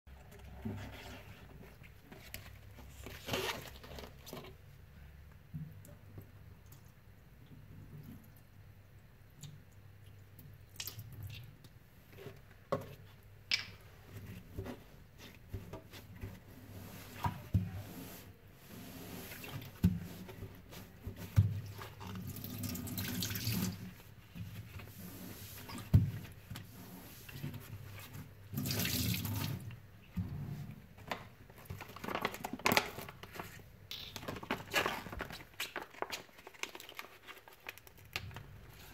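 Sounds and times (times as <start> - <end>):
wet sponge squishing: 14.1 - 29.7.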